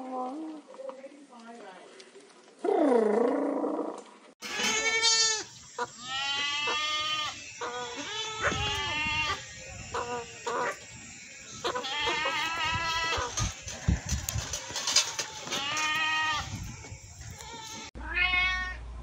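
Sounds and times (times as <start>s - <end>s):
goat bleating: 4.4s - 10.8s, 11.4s - 13.8s, 14.6s - 16.5s, 17.3s - 18.6s
macaw call: 4.4s - 13.8s.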